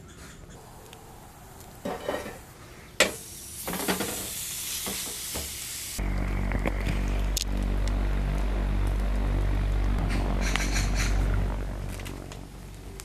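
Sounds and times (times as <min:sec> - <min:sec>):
meat sizzling: 0:03.1 - 0:06.0
low steady hum: 0:05.8 - 0:13.0.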